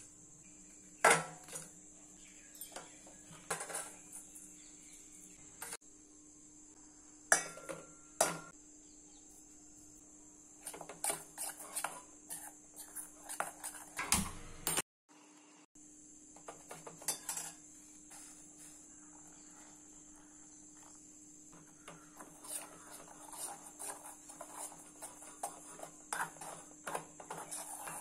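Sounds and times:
metal utensils clinking: 17.0s - 17.6s
light taps and scrapes: 21.6s - 28.0s.

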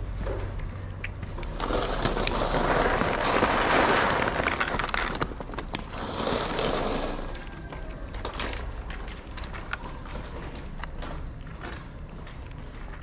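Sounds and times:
plastic bag rustling: 1.4s - 10.3s
kibble poured into plastic tub: 1.5s - 7.6s.

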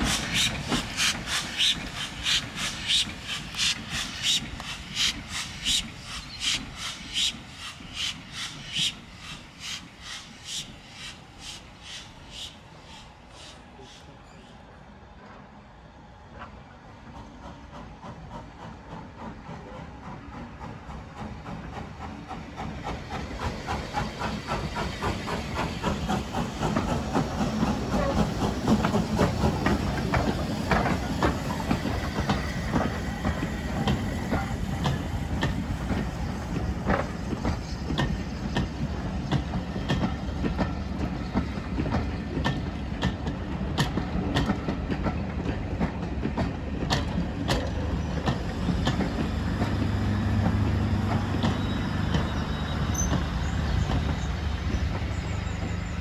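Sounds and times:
steam train running past: 0.0s - 56.0s
wheels clacking over rail joints: 17.8s - 56.0s.

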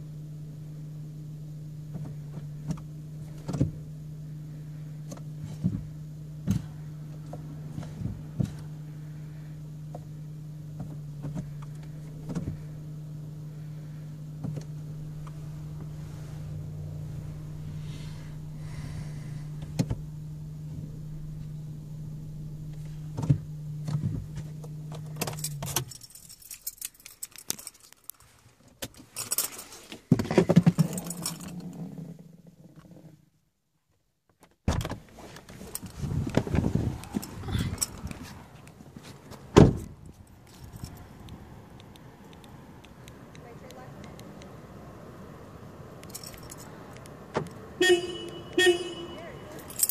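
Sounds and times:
car interior hum: 0.0s - 49.9s
keys jangling: 25.1s - 28.3s, 29.0s - 29.8s, 30.8s - 31.6s, 37.1s - 38.0s, 46.0s - 46.7s, 49.5s - 49.9s
clicks: 41.2s - 44.5s.

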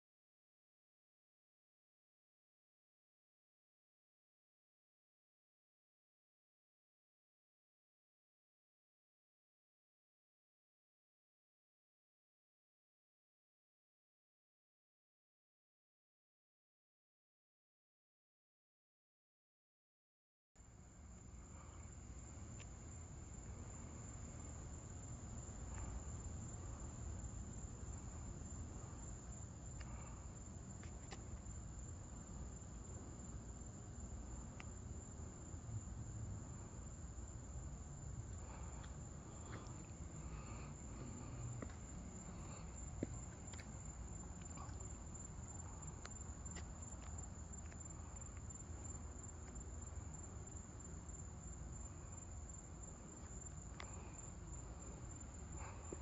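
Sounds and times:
night insects droning: 20.6s - 56.0s.

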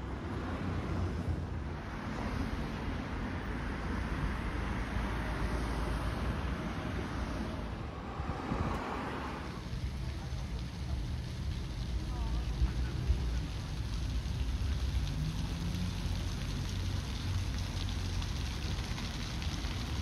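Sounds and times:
cars passing on road: 0.0s - 20.0s
wind rumble on microphone: 0.1s - 15.9s.

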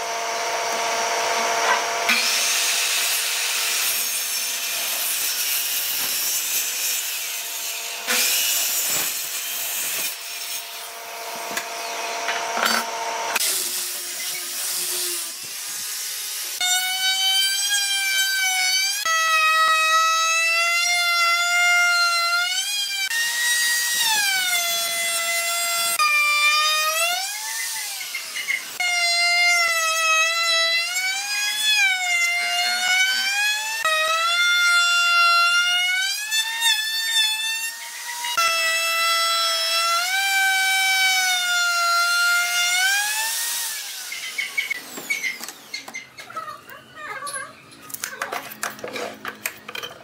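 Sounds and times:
power tool motor whining: 42.8s - 46.2s.

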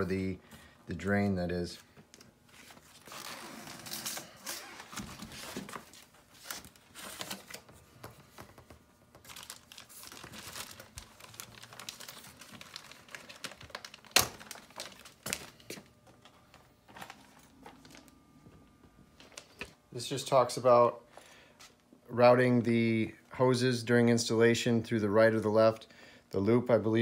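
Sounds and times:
plastic bags crinkling: 9.1s - 18.3s, 19.1s - 19.8s.

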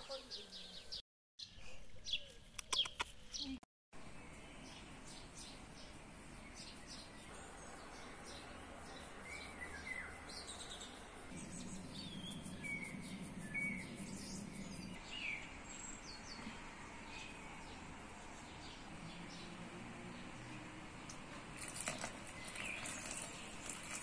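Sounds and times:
small birds chirping: 0.0s - 24.0s
low drone: 4.6s - 18.4s.

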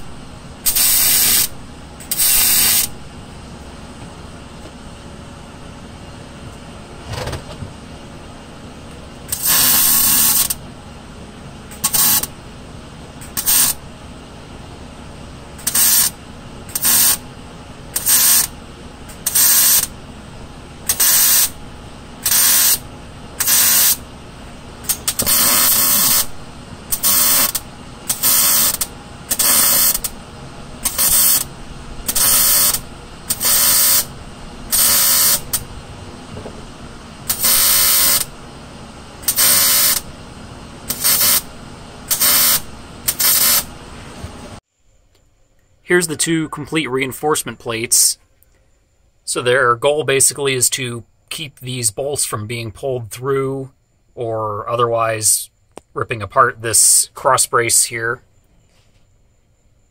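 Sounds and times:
welder welding sheet metal: 0.0s - 3.1s, 9.2s - 10.6s, 11.7s - 12.4s, 13.2s - 14.0s, 15.5s - 44.6s.

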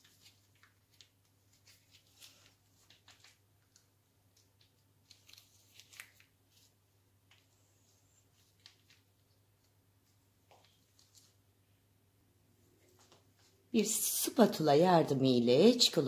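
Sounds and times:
plastic packet crinkling: 0.0s - 6.7s.

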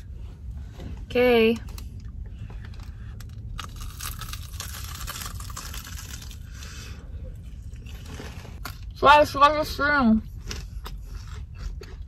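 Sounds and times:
low steady hum: 0.0s - 12.0s
crunchy chewing: 3.1s - 6.8s.

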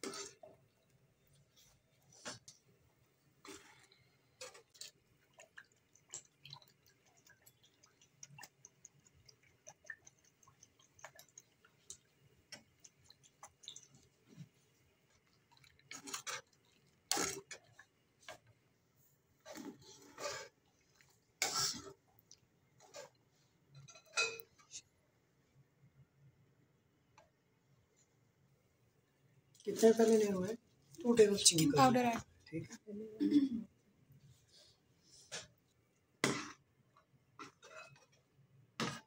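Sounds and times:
soup simmering with ticking pops: 3.7s - 18.8s.

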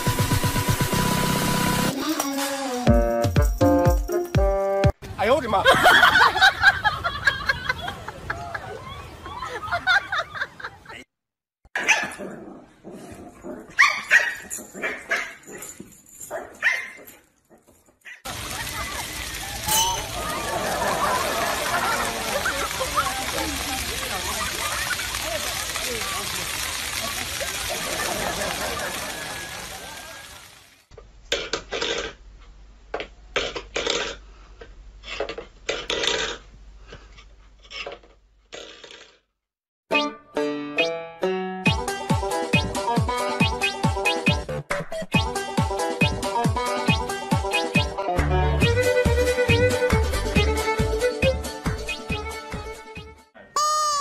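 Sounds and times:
dog barking and yipping: 11.8s - 12.4s, 13.5s - 18.3s
metal bowl scraping on wooden floor: 37.1s - 39.2s.

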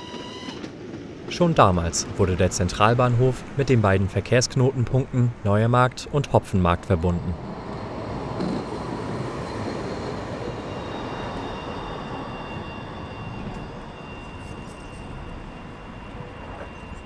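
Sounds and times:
tram rumbling past on rails: 0.0s - 17.0s
faint high whine: 4.6s - 17.0s.

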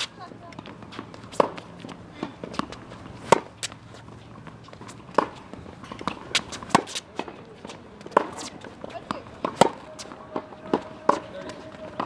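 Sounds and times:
racket hitting tennis ball: 0.0s - 12.0s.

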